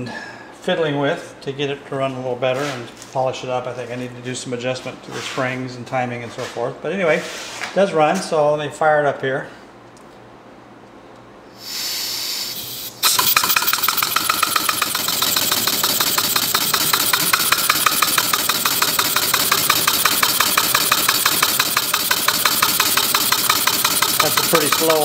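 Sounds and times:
compressed air hissing: 0:11.5 - 0:18.4
model engine idling puffs: 0:11.6 - 0:25.0.

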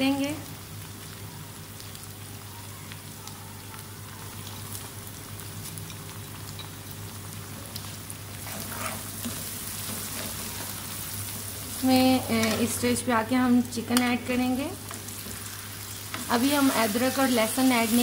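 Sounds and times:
onions sizzling in oil: 0:00.0 - 0:18.0
wooden spoon scraping: 0:08.4 - 0:10.8.

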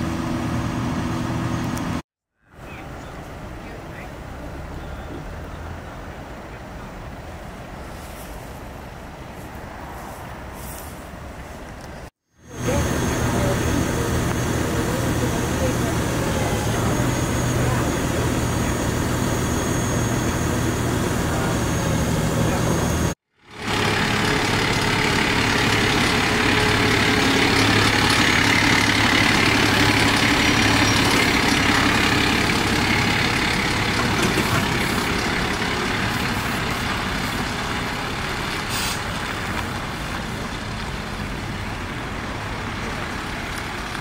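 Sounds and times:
tow truck diesel engine: 0:00.0 - 0:02.0, 0:10.4 - 0:44.0
short hiss: 0:38.7 - 0:39.2.

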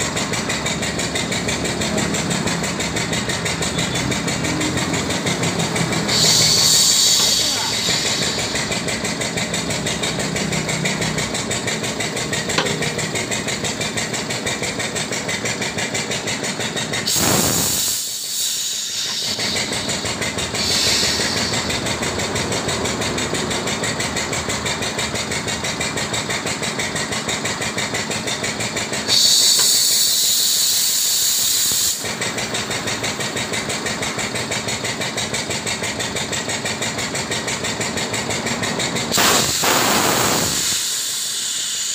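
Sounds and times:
machine rapid mechanical pulsing: 0:00.0 - 0:41.9
compressed air hiss: 0:05.7 - 0:08.9, 0:17.0 - 0:22.0, 0:29.0 - 0:32.8, 0:39.0 - 0:41.9.

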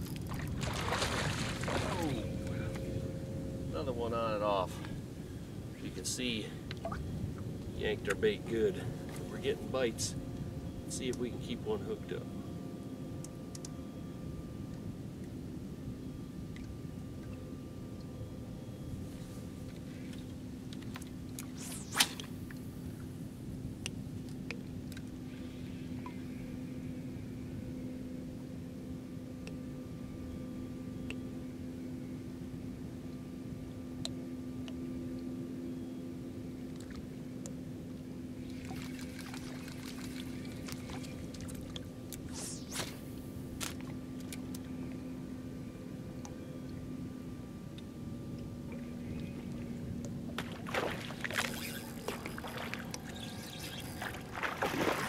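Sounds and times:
steady low hum: 0:00.0 - 0:55.0
water splashing: 0:00.2 - 0:02.3, 0:50.4 - 0:55.0
sharp snap: 0:21.4 - 0:22.3, 0:42.1 - 0:43.0
fishing rod swish: 0:21.4 - 0:22.4, 0:42.2 - 0:43.8
spinning reel retrieve: 0:51.4 - 0:54.3.

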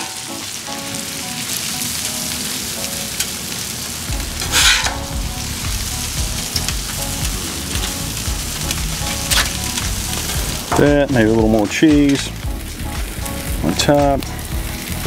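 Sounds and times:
griddle sizzling: 0:00.0 - 0:15.0
metal spatula scraping: 0:04.4 - 0:05.1.

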